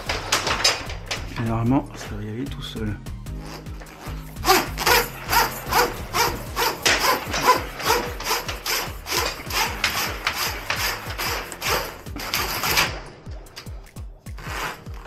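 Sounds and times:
wires sliding into plastic conduit: 3.5 - 13.0, 14.3 - 15.0.

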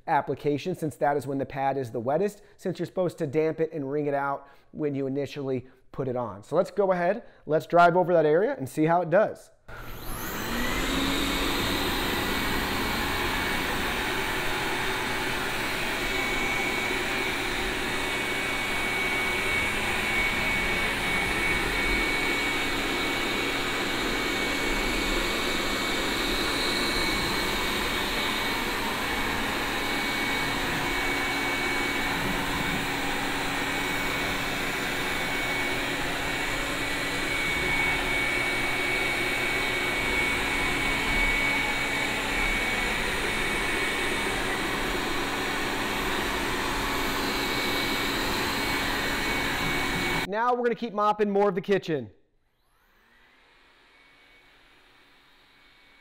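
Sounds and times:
robot vacuum whirring: 9.7 - 50.3.

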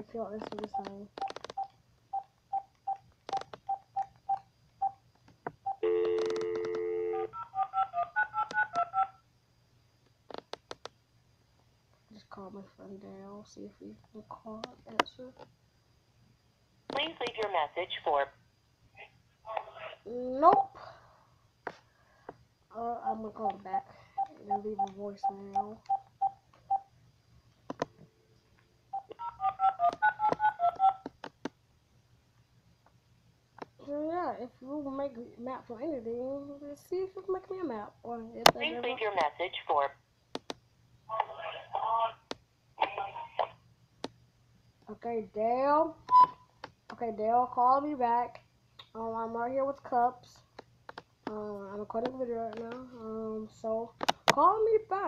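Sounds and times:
touch tones dialling: 0.5 - 5.0, 5.7 - 9.1, 29.0 - 31.0
keypad beeps: 0.6 - 5.0, 24.2 - 26.9, 46.1 - 46.4
dial tone: 5.7 - 9.1.

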